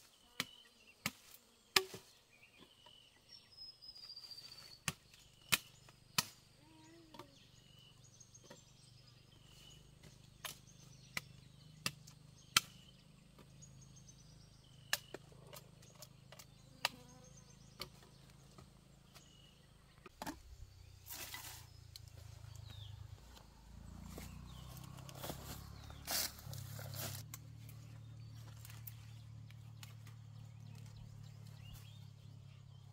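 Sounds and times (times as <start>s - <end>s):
blade chopping sugarcane: 0.4s - 2.0s, 4.8s - 6.4s, 10.0s - 12.9s, 14.8s - 15.6s.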